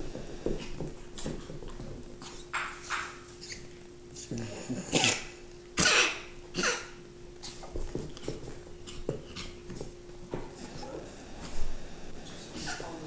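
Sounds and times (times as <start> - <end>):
faint steady hum: 0.0 - 13.0
puppies play-fighting noises: 0.3 - 13.0.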